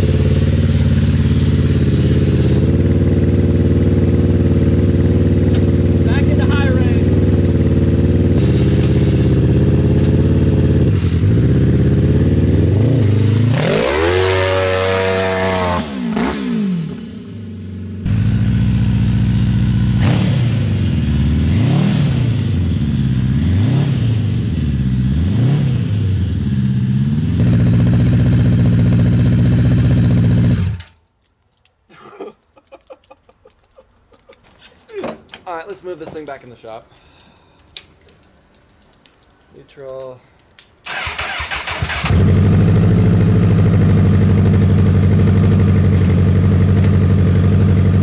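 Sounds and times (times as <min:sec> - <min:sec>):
buggy engine revving: 0:00.0 - 0:31.0, 0:40.8 - 0:48.0.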